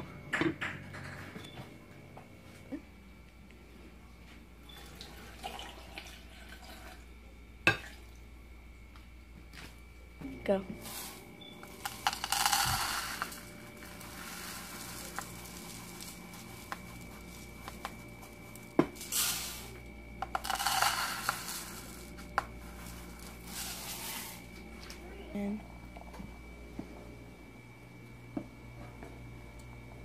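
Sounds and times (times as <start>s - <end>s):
rice poured into saucepan: 10.8s - 24.6s.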